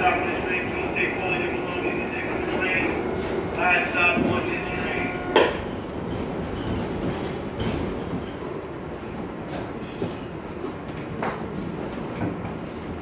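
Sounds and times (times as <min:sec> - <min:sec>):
train wheels rumbling on rail: 0:00.0 - 0:13.0
clicks of train wheels: 0:03.8 - 0:13.0.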